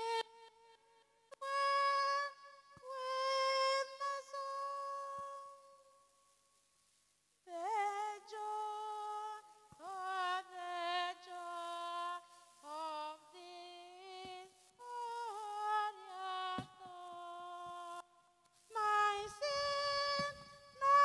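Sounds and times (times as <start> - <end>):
woman singing solo: 18.8 - 21.0.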